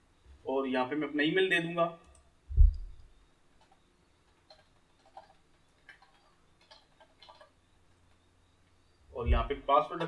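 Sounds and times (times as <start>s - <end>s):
loud low thump: 2.5s - 3.0s
keyboard keys clicking: 4.5s - 7.5s.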